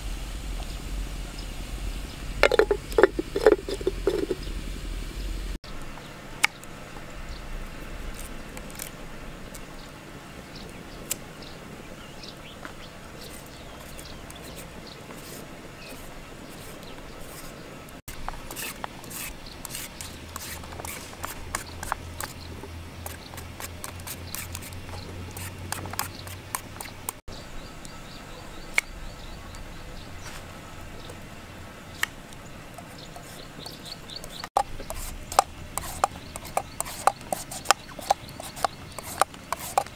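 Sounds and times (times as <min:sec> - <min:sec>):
low hum: 0:00.0 - 0:05.6
knife shaving carrot strips: 0:13.2 - 0:27.2, 0:32.8 - 0:39.9
knife cutting carrot on wood: 0:18.2 - 0:22.4, 0:23.0 - 0:27.2, 0:34.6 - 0:39.9.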